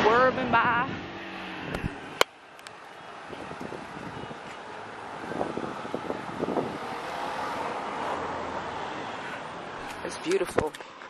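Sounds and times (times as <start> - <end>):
vehicle traffic: 0.0 - 11.0
wind on microphone: 3.2 - 7.9.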